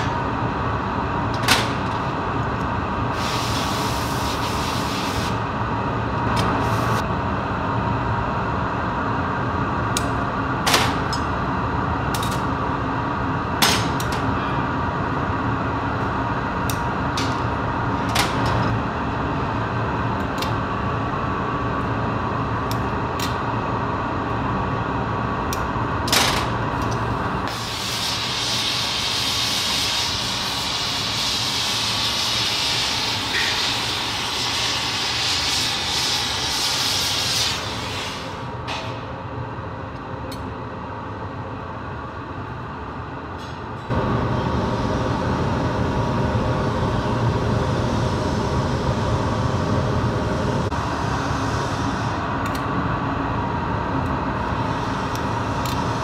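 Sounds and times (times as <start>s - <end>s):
low workshop roar: 0.0s - 56.0s
gas torch hissing: 3.0s - 5.5s, 27.5s - 38.6s, 43.9s - 52.2s, 54.4s - 56.0s.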